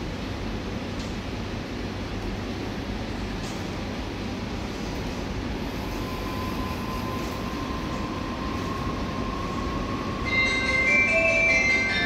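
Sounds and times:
faint steady whine: 0.0 - 12.0
subway train rumbling: 0.0 - 12.0
bell-like chime: 10.2 - 12.0.

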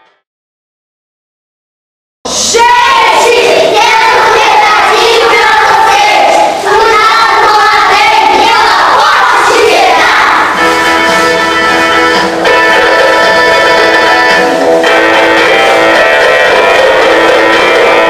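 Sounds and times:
children singing in chorus: 2.3 - 14.6.

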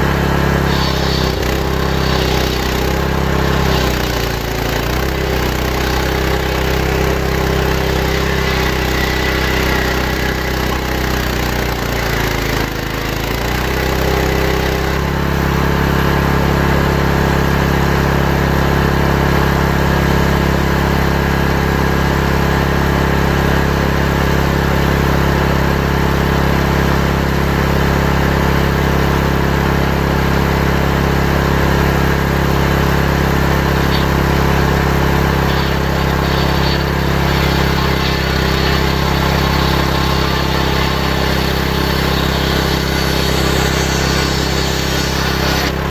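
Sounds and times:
table saw ripping wood: 0.0 - 15.2, 32.8 - 45.9.

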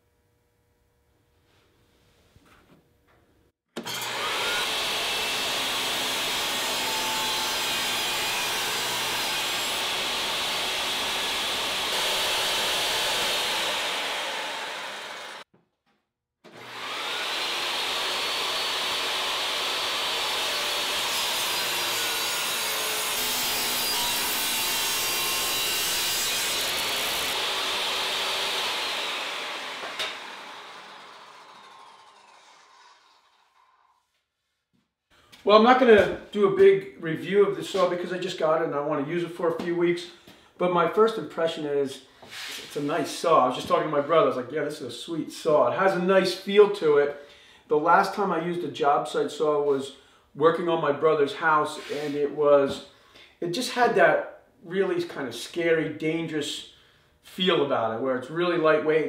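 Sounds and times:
table saw cutting wood: 3.8 - 15.5, 16.5 - 34.0, 42.2 - 42.9, 51.8 - 52.3.

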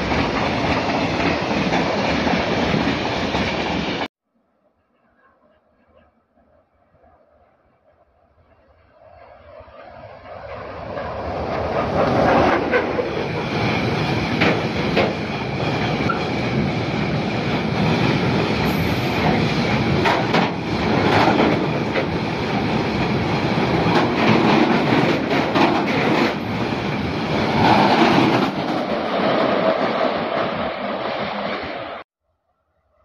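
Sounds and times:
freight train rumbling past: 0.0 - 4.1, 5.2 - 32.0
train wheels clacking: 10.9 - 16.8, 17.4 - 26.8.

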